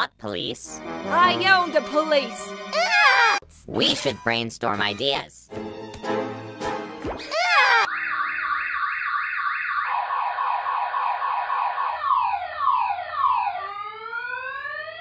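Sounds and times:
car alarm: 0:07.9 - 0:15.0.

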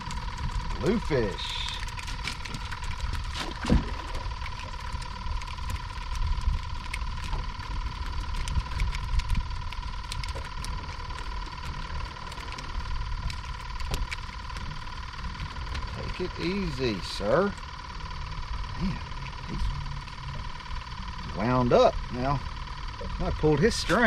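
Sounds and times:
wind rumbling on microphone: 0:00.0 - 0:16.6.

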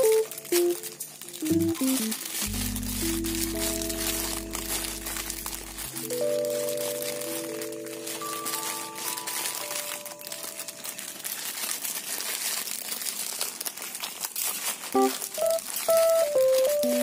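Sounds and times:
background music: 0:00.0 - 0:10.4
plastic sachets crinkling and tearing: 0:00.0 - 0:17.0.

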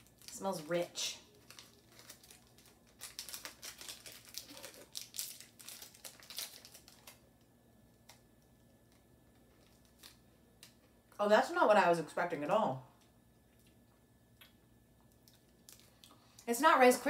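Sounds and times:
wrapper crinkling: 0:00.0 - 0:10.9, 0:15.2 - 0:16.4.

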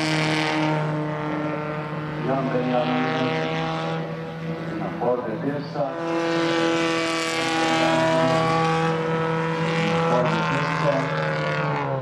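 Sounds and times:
race car engine at high revs: 0:00.0 - 0:12.0.

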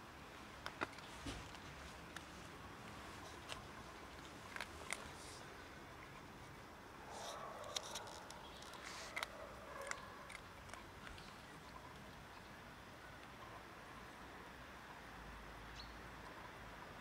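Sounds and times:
cat crunching dry kibble: 0:00.6 - 0:06.3, 0:07.1 - 0:11.6.

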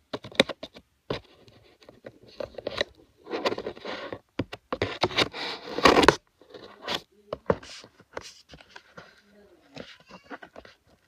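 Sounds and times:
packaging scraping and rustling: 0:04.8 - 0:09.2.

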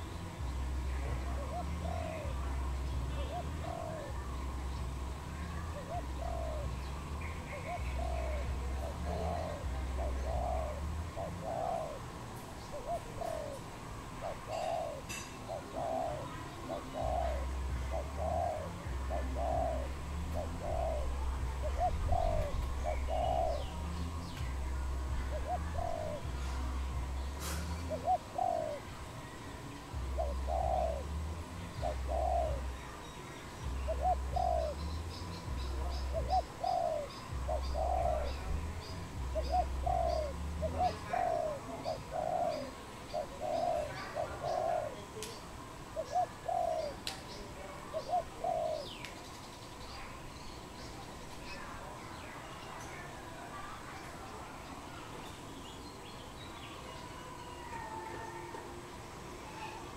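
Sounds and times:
dove cooing: 0:00.0 - 0:49.2.

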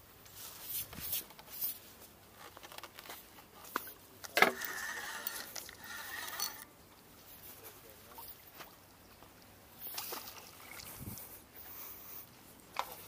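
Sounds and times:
fishing reel buzzing: 0:04.6 - 0:06.6.

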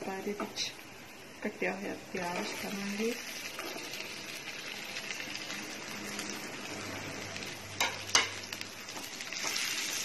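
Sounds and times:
onion sizzling in hot oil: 0:00.0 - 0:10.0.

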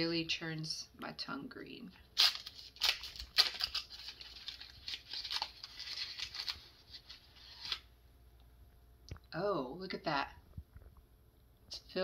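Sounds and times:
wrapper crinkling: 0:02.2 - 0:07.9
wrapper tearing: 0:02.2 - 0:07.9.

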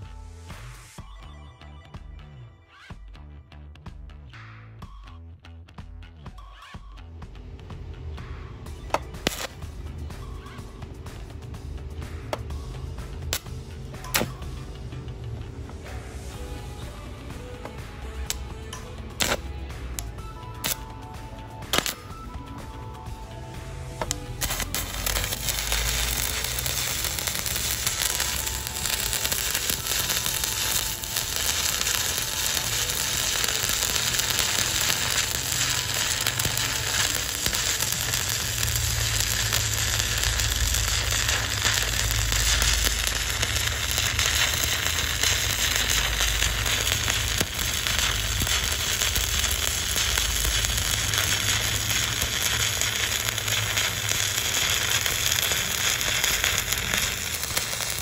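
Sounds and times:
welding arc burning: 0:08.8 - 0:14.4, 0:17.8 - 0:22.3, 0:24.0 - 0:58.0.

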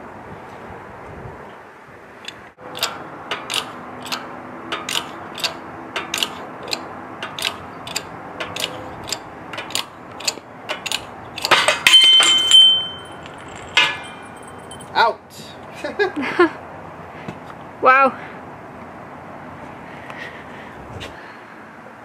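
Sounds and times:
hydraulic jack pumping clicks: 0:02.2 - 0:12.0
bearing cracking with metallic ring: 0:02.3 - 0:15.0.

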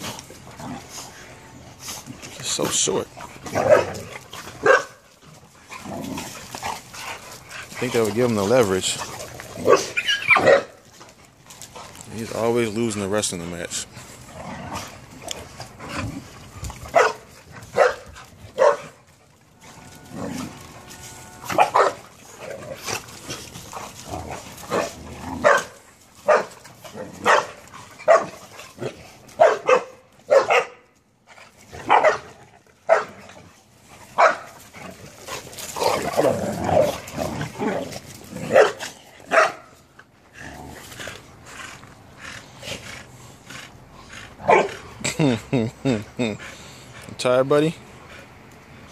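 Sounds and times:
puppies barking while play-fighting: 0:02.9 - 0:12.1, 0:14.2 - 0:40.2, 0:44.3 - 0:45.0.

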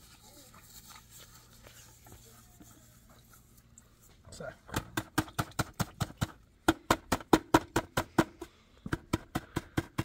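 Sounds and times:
stick stirring in plastic bucket: 0:00.0 - 0:04.3.

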